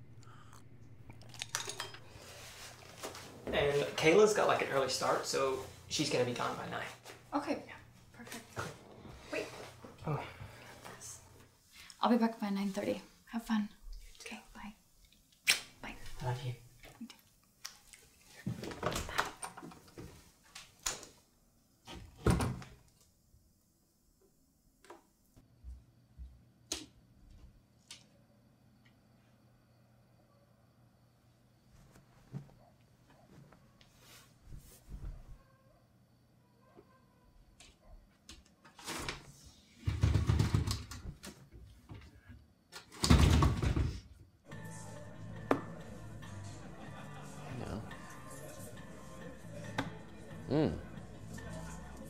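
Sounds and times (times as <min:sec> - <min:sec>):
rustling: 0:02.1 - 0:04.0
closet door opening and shutting: 0:18.5 - 0:20.2, 0:21.8 - 0:22.9, 0:38.4 - 0:44.1.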